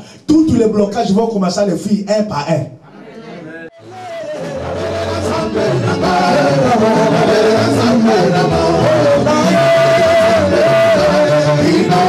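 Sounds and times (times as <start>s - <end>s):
backing singers: 3.0s - 12.0s
band with bass: 3.8s - 12.0s
man singing gospel song: 3.8s - 12.0s.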